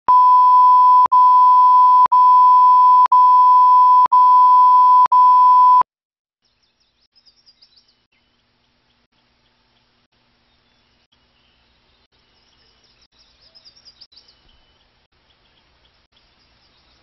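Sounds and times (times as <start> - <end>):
loud electronic beep tone: 0.1 - 5.8.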